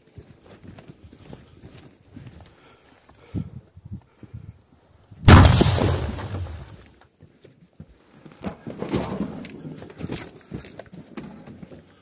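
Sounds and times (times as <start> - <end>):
grenade launcher blast: 5.3 - 6.8.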